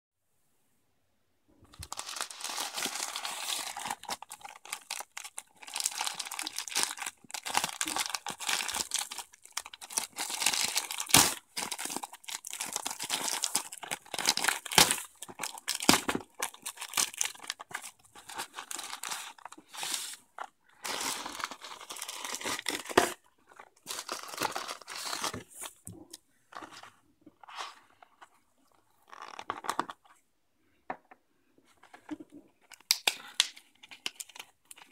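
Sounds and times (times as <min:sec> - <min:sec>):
plastic bag crinkling and tearing: 0:01.7 - 0:19.6, 0:20.8 - 0:23.2.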